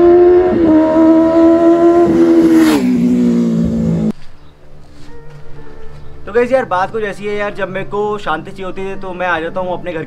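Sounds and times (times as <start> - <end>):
motorcycle passing at high revs: 0.0 - 4.1.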